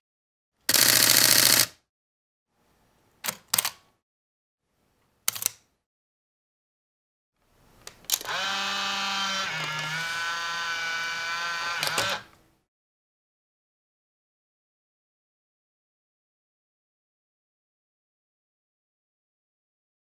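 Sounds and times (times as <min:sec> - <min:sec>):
film ejection motor whirring: 0:08.1 - 0:12.3
camera shutter clicks: 0:11.8 - 0:12.2.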